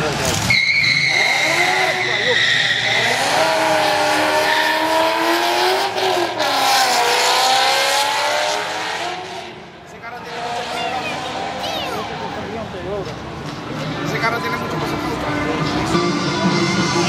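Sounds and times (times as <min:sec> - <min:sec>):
drag cars accelerating hard: 0:00.0 - 0:12.5.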